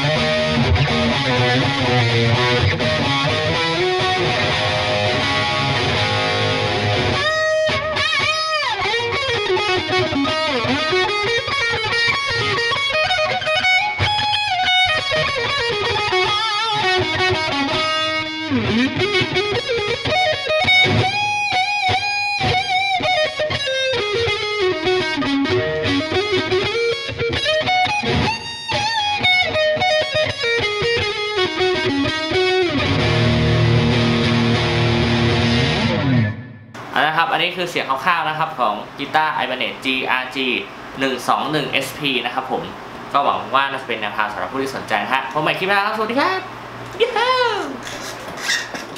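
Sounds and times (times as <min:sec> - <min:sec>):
distorted electric guitar lead runs: 0:00.0 - 0:37.2.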